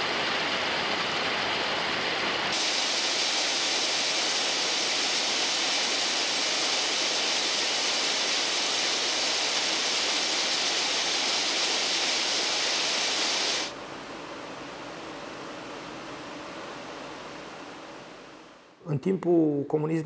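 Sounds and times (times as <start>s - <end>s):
loud rushing hiss: 0.0s - 13.8s.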